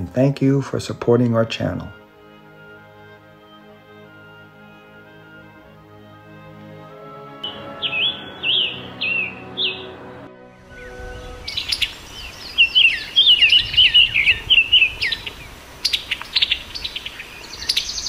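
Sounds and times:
bird chirps: 7.4 - 10.1, 10.7 - 18.0
bird clicking notes: 15.9 - 16.6.

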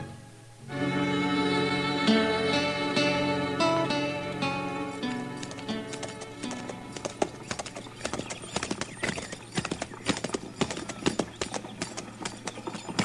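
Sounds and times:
horse hooves clopping on street: 4.8 - 13.0.

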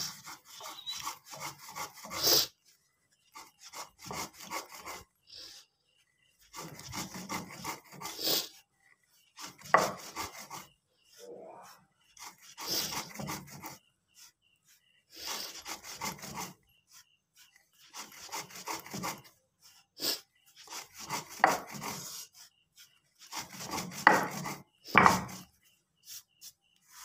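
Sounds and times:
stone grinding spices on slab: 0.0 - 2.6, 3.2 - 5.1, 6.4 - 10.8, 12.1 - 13.8, 14.7 - 25.5.

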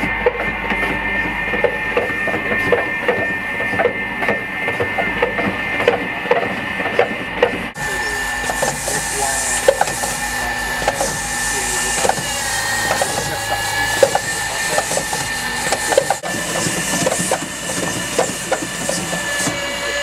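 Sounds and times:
cleaning robot brush whining: 0.0 - 20.0.

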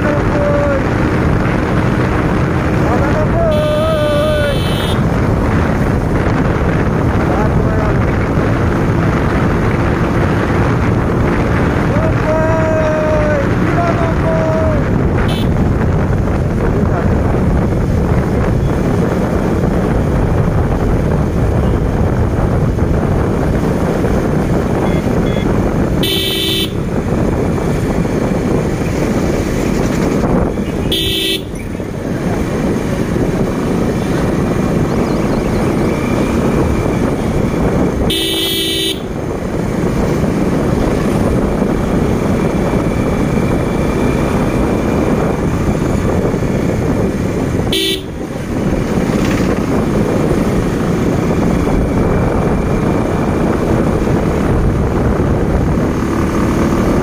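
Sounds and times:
wind and motorbike road noise: 0.0 - 57.0
horn honking: 3.4 - 5.1, 15.2 - 15.6, 24.8 - 26.9, 30.6 - 31.7, 38.0 - 39.2, 47.6 - 48.3.

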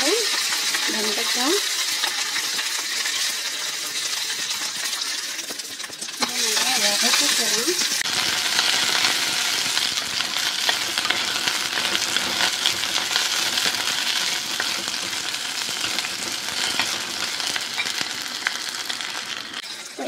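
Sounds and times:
vegetables sizzling in hot oil: 0.0 - 20.0.

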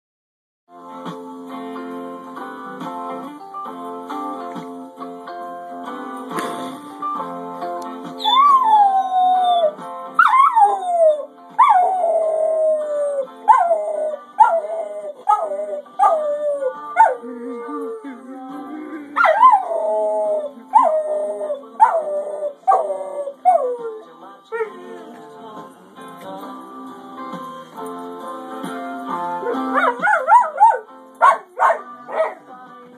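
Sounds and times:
music: 0.7 - 32.9
dog howling: 8.2 - 18.2, 19.2 - 24.8, 29.4 - 32.4.

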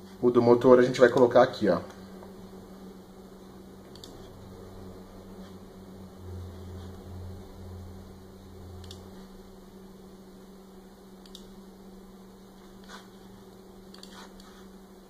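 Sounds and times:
faint electrical hum: 0.0 - 15.0
computer mouse clicks: 3.9 - 4.2, 8.8 - 9.1, 11.2 - 11.5, 13.9 - 14.6.

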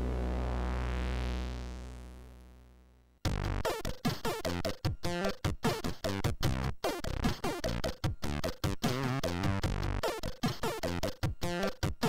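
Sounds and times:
held synth chord: 0.0 - 2.7.

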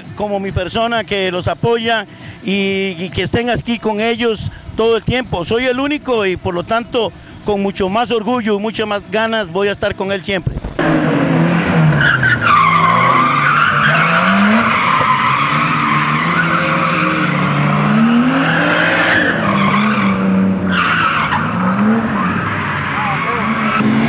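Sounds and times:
car engine revving: 10.5 - 24.0
tyres screeching: 10.8 - 24.0.

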